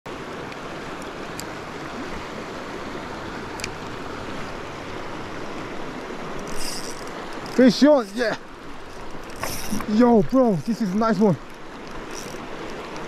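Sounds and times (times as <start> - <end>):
river water rushing: 0.1 - 13.0
faint clicks: 6.4 - 13.0.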